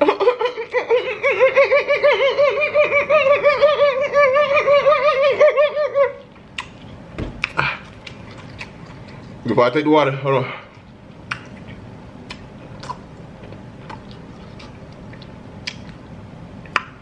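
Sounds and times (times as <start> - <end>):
high-pitched warbling laugh-like voice: 0.0 - 6.3.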